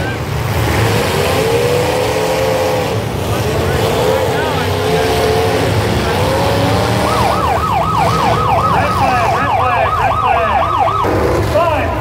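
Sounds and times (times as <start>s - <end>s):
car engines running: 0.0s - 12.0s
siren yelping: 6.4s - 11.2s.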